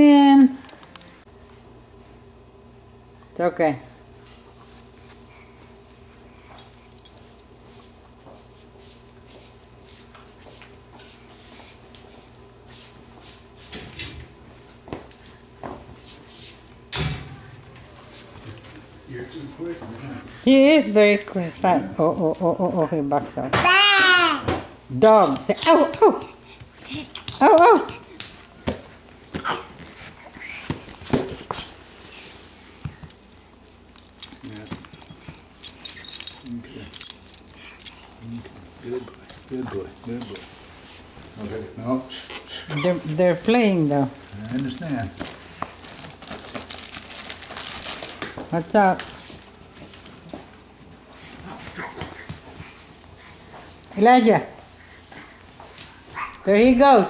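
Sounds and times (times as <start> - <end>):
steady low hum: 24.6 - 57.0.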